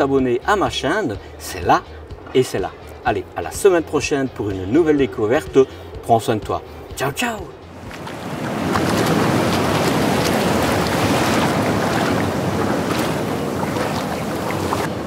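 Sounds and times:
steady rushing noise: 7.7s - 15.0s.

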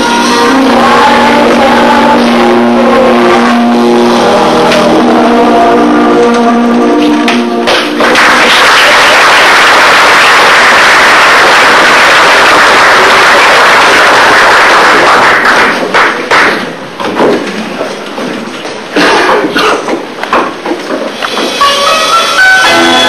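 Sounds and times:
children's choir singing: 0.0s - 7.6s
audience clapping: 7.6s - 16.8s.

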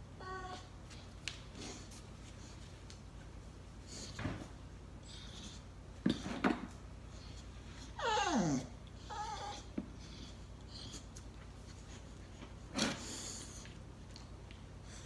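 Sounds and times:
dog whining: 0.1s - 0.7s, 7.8s - 11.2s
dog whimper: 0.2s - 0.7s, 7.8s - 11.1s.

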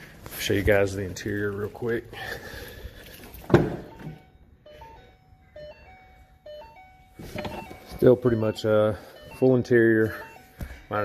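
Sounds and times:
car door clunking open: 3.4s - 4.2s
electronic beeping tune: 3.8s - 11.0s.

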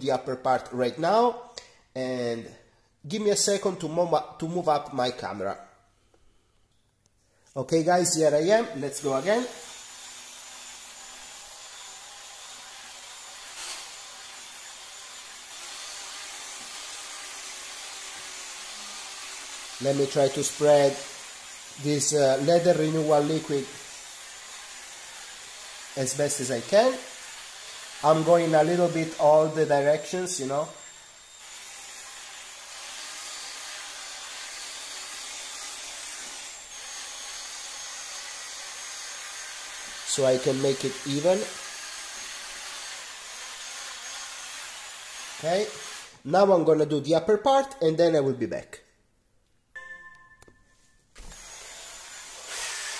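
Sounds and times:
polisher motor whirring: 51.2s - 52.9s.

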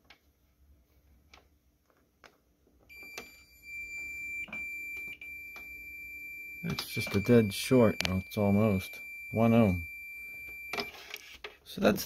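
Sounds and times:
multimeter continuity beep: 2.9s - 11.4s
probe clicks: 6.6s - 8.4s.

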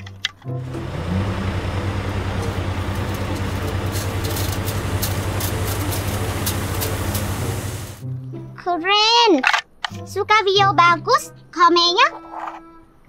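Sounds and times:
diesel truck engine running: 0.5s - 8.0s
sand sliding: 0.6s - 8.0s.

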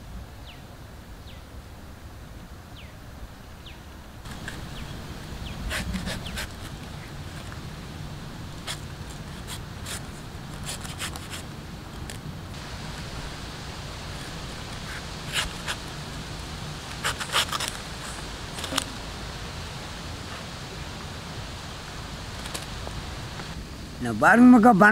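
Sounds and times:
steady low hum: 0.0s - 24.0s
knife scraping fruit skin: 5.7s - 6.8s, 8.6s - 11.5s, 14.8s - 15.8s, 16.9s - 18.8s.

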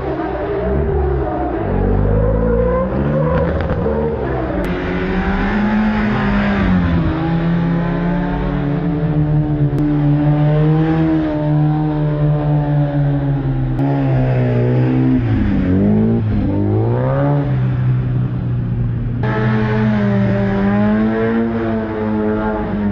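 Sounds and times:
car engine revving: 0.0s - 22.9s.

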